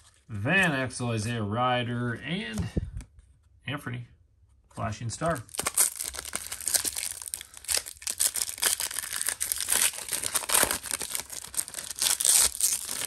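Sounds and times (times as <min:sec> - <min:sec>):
foil wrapper tearing and crinkling: 0:05.5 - 0:13.0.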